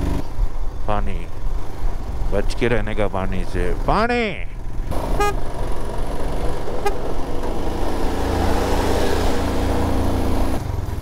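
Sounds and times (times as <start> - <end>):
horn toot: 5.2 - 5.4, 6.8 - 7.0.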